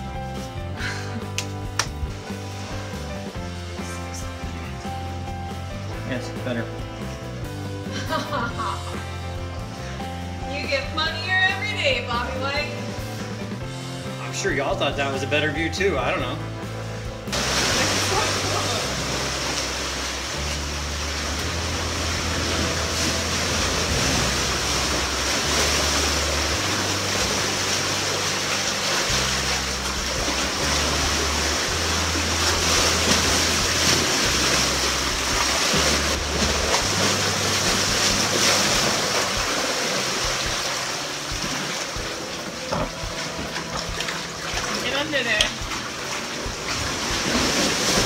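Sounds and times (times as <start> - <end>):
background music bass notes: 0.0 - 48.0
sea water rushing between boulders: 17.3 - 48.0.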